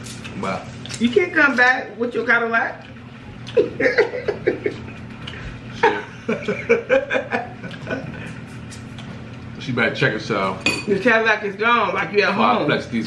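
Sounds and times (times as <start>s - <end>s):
people laughing: 3.6s - 5.1s, 5.7s - 8.4s.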